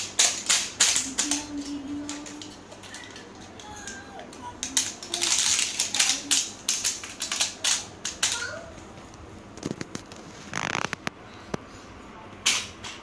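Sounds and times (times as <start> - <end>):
plastic crinkling and crackling: 0.0 - 8.6, 9.5 - 11.2.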